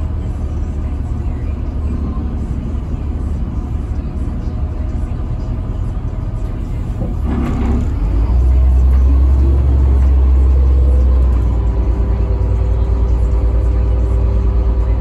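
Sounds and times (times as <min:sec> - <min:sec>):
bus diesel engine under load: 0:00.0 - 0:15.0.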